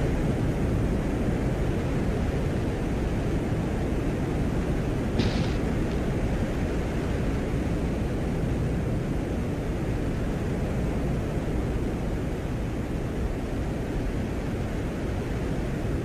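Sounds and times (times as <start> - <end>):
steady deep rushing noise: 4.9 - 8.9.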